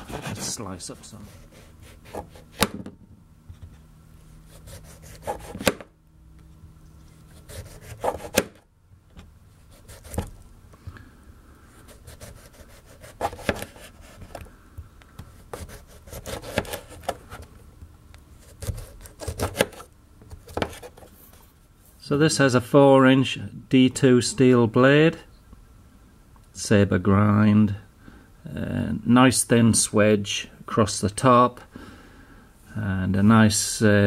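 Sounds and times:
soft rubbing: 0.0s - 2.6s
knife slicing lemon on bench: 4.6s - 5.9s, 7.4s - 8.6s, 12.0s - 14.3s, 15.5s - 17.3s, 18.6s - 21.0s.

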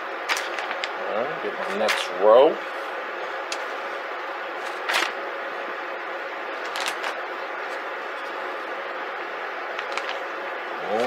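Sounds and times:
plastic bag rustling: 0.2s - 1.0s, 6.6s - 8.7s, 9.7s - 11.0s.

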